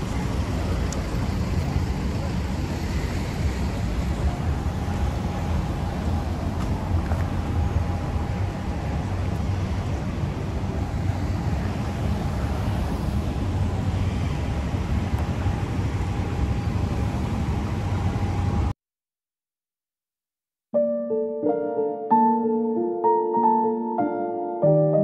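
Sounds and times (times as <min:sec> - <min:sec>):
street traffic rumble: 0:00.0 - 0:18.7
soft piano music: 0:20.8 - 0:25.0.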